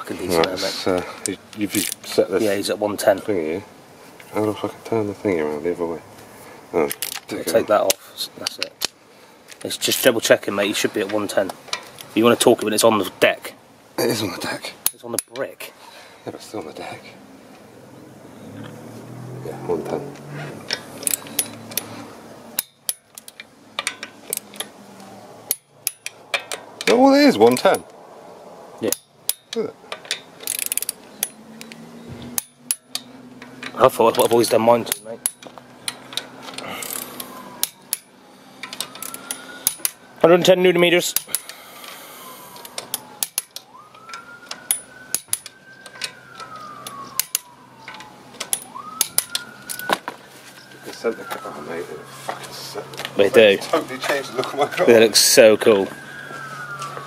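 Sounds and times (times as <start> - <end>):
emergency siren wailing: 17.8 - 22.6, 30.8 - 57.0
torque wrench clicking on wheel nuts: 22.5 - 24.7, 25.5 - 27.8, 28.8 - 33.9, 34.8 - 40.0, 42.6 - 49.9
torque wrench ratcheting clicks: 28.9 - 31.7.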